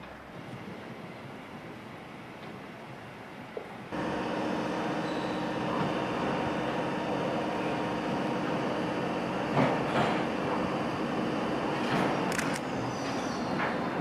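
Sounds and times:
train running: 2.0s - 14.0s
faint steady tones: 3.9s - 12.9s.

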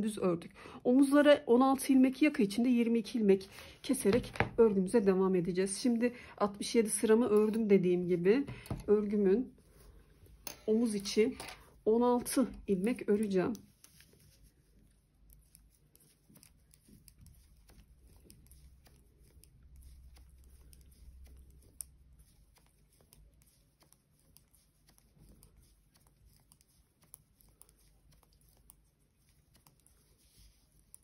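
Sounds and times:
knitting needles clicking: 15.2s - 31.0s.

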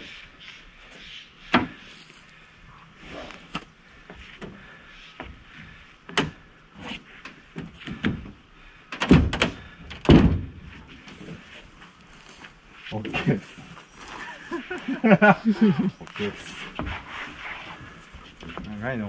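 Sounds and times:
heavy timber thuds: 9.0s - 11.4s.

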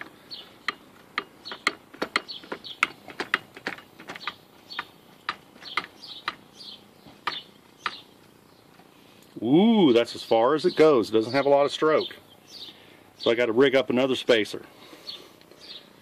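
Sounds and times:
hydraulic hand pump clicking: 0.0s - 6.5s.

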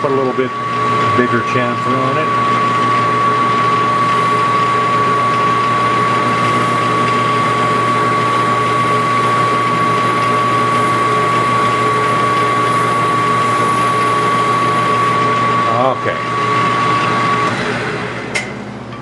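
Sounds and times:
metal lathe whining: 0.0s - 19.0s.

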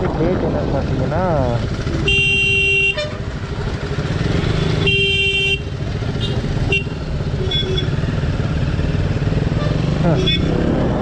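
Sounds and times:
motorcycle engine running: 0.0s - 11.0s
vehicle horn: 2.0s - 3.2s, 4.6s - 8.0s.

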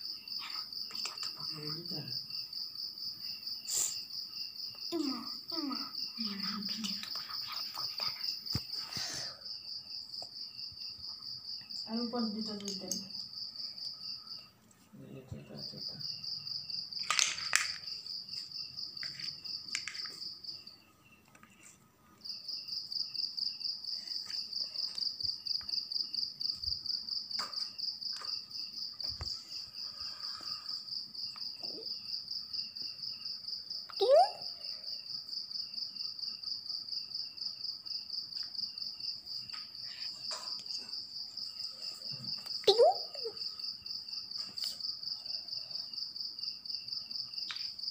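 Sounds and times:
insect trilling: 0.0s - 21.2s, 38.9s - 45.9s.

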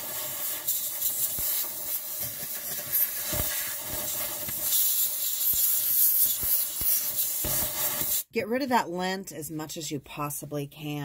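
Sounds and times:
compressed air hissing: 0.0s - 8.3s.

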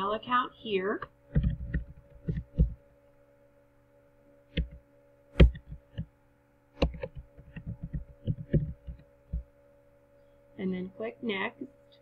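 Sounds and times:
faint steady hum: 0.0s - 12.0s
keyboard key taps: 5.4s - 6.1s, 6.8s - 9.5s.

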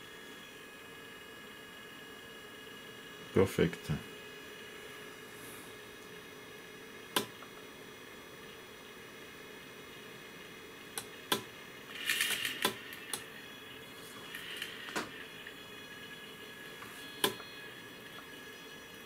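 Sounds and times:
servo motor whirring: 11.9s - 13.3s, 14.0s - 15.6s.

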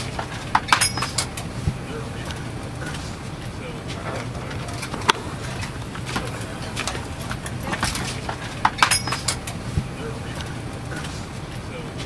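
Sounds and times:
airliner cabin drone: 0.0s - 12.0s
tray table clicks and knocks: 7.7s - 9.6s.

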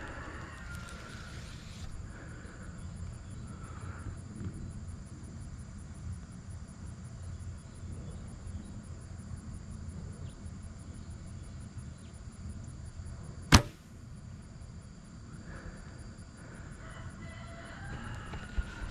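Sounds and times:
bow string snap: 13.5s - 13.9s.

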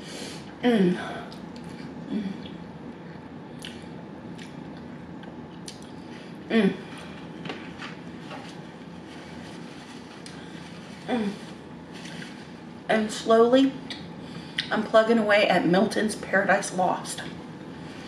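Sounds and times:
person chewing spaghetti: 1.3s - 6.1s
wet mouth clicks and smacks: 4.4s - 6.0s.

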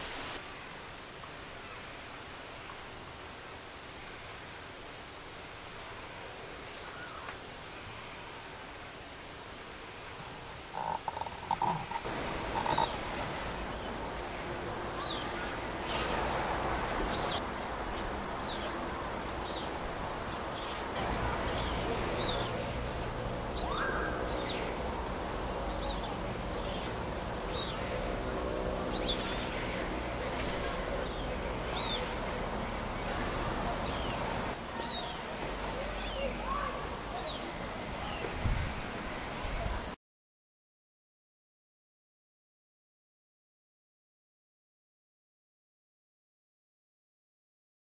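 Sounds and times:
insects buzzing: 10.3s - 40.0s
small birds chirping: 10.8s - 28.3s, 28.9s - 39.0s.

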